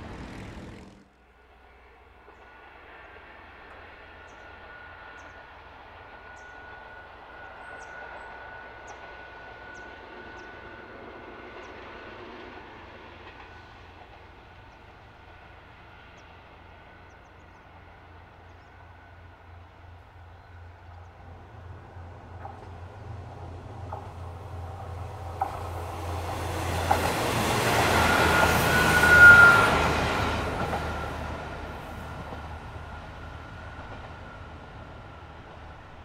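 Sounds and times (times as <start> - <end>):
diesel railcar engine throb: 0.0 - 1.2, 12.6 - 36.0
rail running noise: 0.0 - 36.0.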